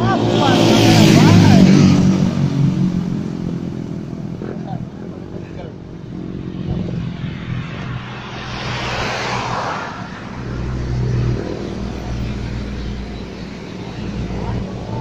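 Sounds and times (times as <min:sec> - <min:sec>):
tyre and wind hiss of passing vehicle: 0:06.0 - 0:15.0.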